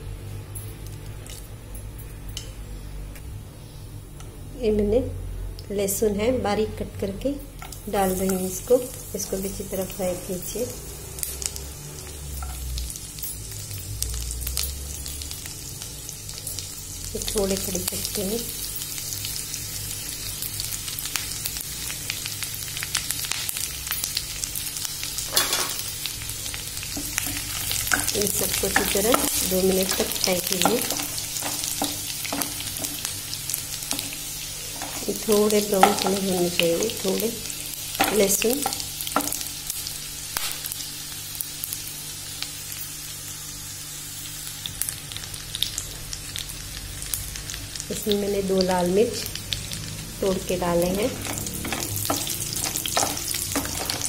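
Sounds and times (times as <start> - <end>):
steady low hum: 0.0 - 40.4
oil sizzling in a pan: 7.6 - 54.0.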